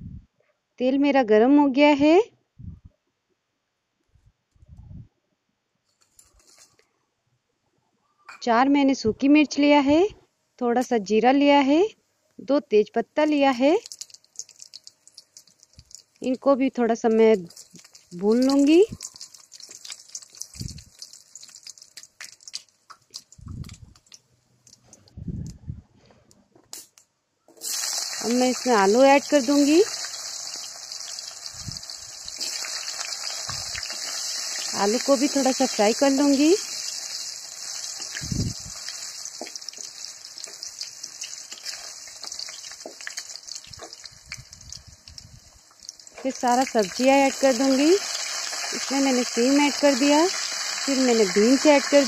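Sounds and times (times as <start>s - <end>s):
spices sizzling in hot oil: 13.2s - 24.8s, 27.6s - 52.0s.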